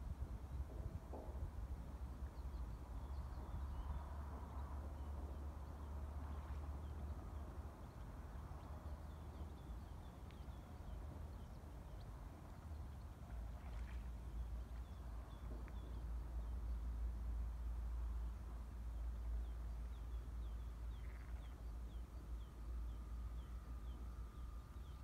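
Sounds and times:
low uneven rumble: 0.0 - 25.0
faint bird chirps: 19.6 - 25.0.

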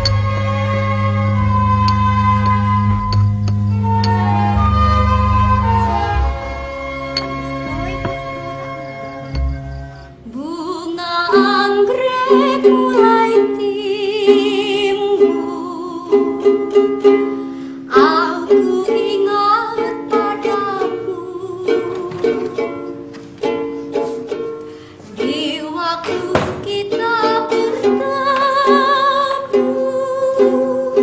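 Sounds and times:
violin slow melody: 0.0 - 10.6
plucked strings: 0.0 - 31.0.

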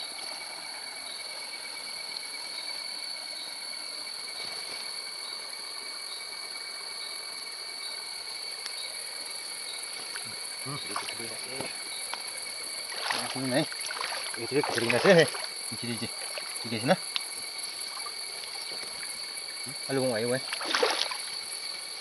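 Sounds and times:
even hiss: 0.0 - 22.0
water dripping and splashing: 10.0 - 21.5.

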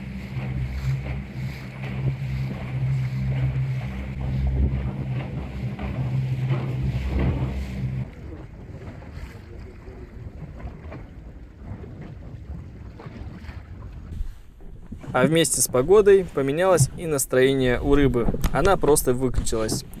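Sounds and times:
low steady hum: 0.0 - 8.3
water lapping against boat: 0.0 - 20.0
wind buffeting microphone: 0.0 - 20.0.

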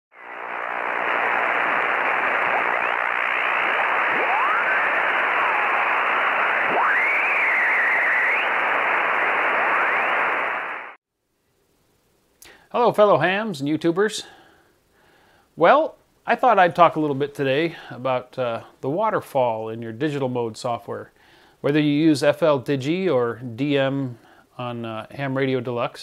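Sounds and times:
radio static hiss: 0.1 - 11.0
whistling radio tones: 0.1 - 11.0.

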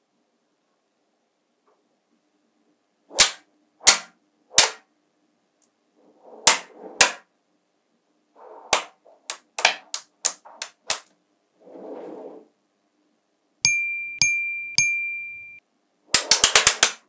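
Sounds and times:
magnetic balls clicking together: 16.2 - 17.0.

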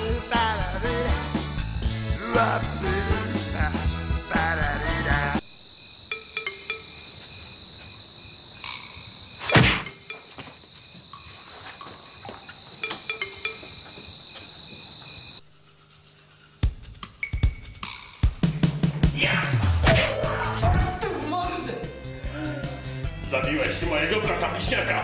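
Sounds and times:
crickets chirping: 0.0 - 18.2.

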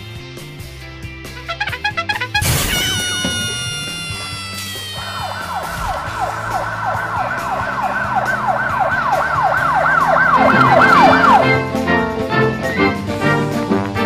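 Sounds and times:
falling brass glide: 1.4 - 11.6
siren-like wailing tone: 1.5 - 11.7.

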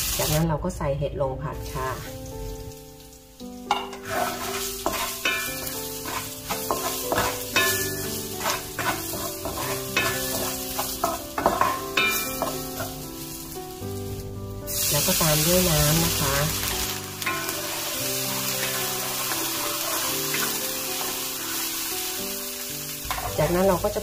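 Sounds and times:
food sizzling in hot oil: 0.0 - 0.5, 1.3 - 24.0
wooden spatula scraping wok: 3.7 - 13.4, 14.9 - 21.9.

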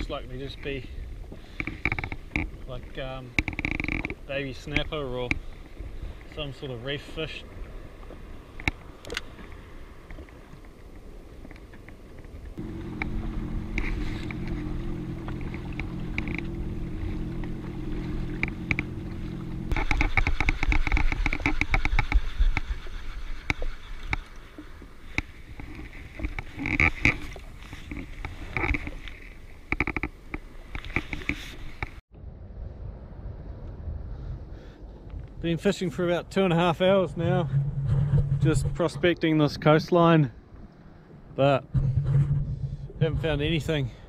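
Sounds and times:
jet ski engine humming: 0.0 - 32.0
rushing water: 0.0 - 32.0
water splashing against hull: 0.0 - 32.0.

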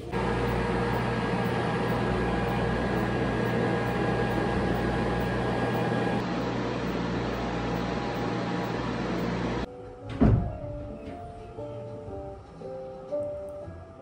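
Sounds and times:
machine hum and fan noise: 0.0 - 9.8.

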